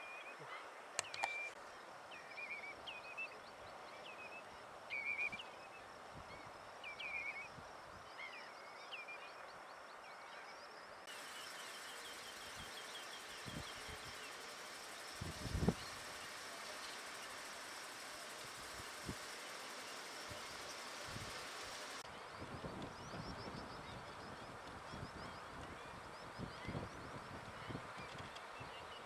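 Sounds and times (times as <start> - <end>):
faint fast chirping: 11.0 - 22.0.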